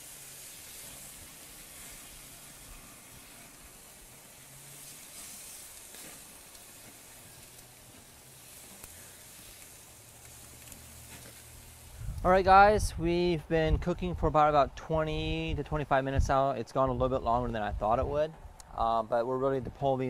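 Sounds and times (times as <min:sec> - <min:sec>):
chicken sizzling on a grill: 0:00.0 - 0:12.8.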